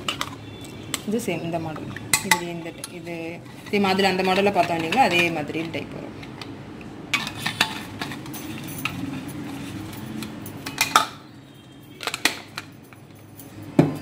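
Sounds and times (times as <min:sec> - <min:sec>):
metal flasks clinking: 0:07.2 - 0:11.2.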